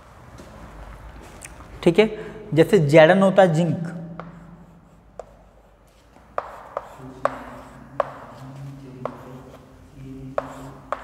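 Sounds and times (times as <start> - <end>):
chalk tapping and scratching on blackboard: 4.2 - 11.0.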